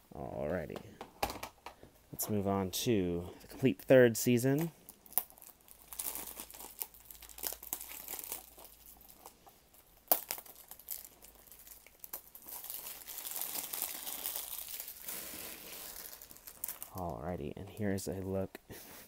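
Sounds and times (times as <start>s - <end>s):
plastic film rustling: 4.6s - 17.2s
plastic shrink wrap crinkling: 4.6s - 17.8s
plastic film snapping: 5.0s - 9.3s, 10.0s - 15.1s.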